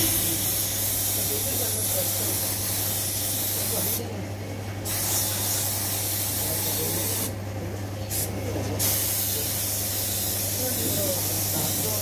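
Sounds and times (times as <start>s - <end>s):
steady low hum: 0.0s - 1.4s
paint spray gun hissing: 0.0s - 4.0s, 4.9s - 7.3s, 8.1s - 12.0s.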